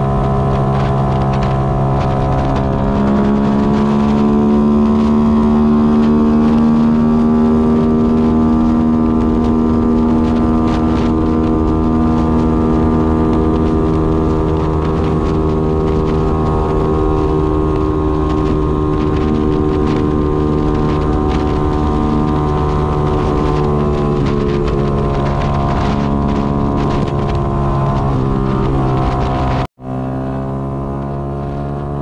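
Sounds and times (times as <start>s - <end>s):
motorcycle engine cruising: 0.0s - 32.0s
road noise: 0.0s - 32.0s.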